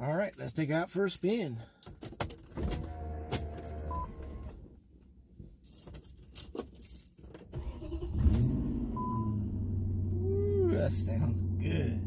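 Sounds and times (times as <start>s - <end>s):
car engine idling: 7.6s - 12.0s.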